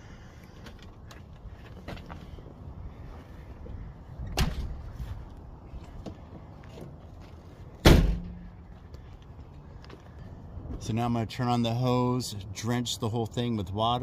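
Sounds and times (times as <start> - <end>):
car doors slamming: 7.8 - 8.5.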